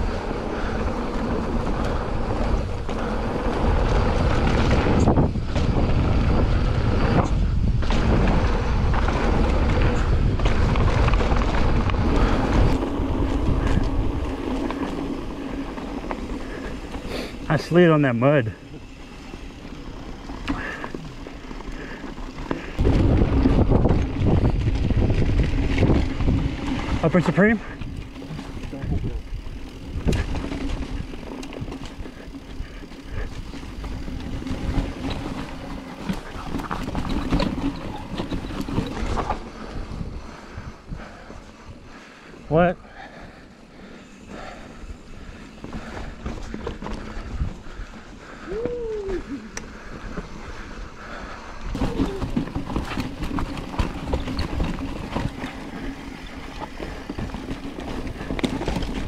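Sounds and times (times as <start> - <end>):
wind on microphone: 0.0 - 16.7, 22.7 - 27.0
bike rattling: 0.0 - 59.0
tyres on rough ground: 0.0 - 59.0.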